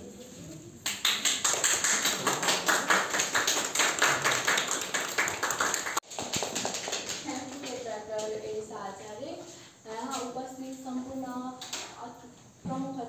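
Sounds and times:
people clapping: 0.8s - 8.3s.

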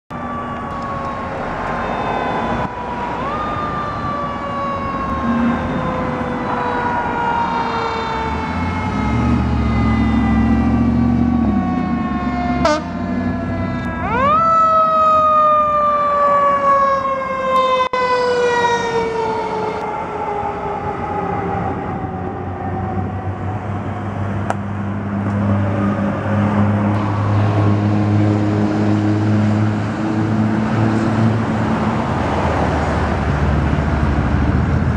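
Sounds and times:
drone of engines and traffic: 0.1s - 34.9s.

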